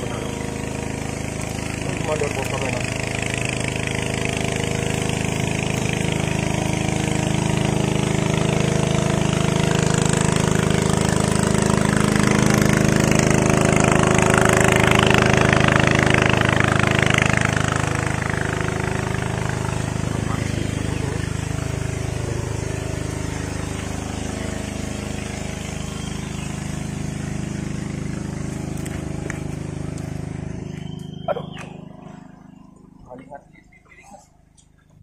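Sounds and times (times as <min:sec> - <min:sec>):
small engine running: 0:00.0 - 0:35.0.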